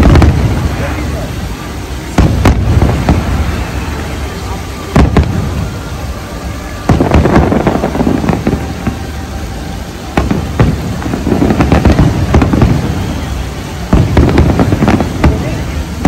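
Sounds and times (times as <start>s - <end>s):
fireworks crackling and banging: 0.0s - 16.0s.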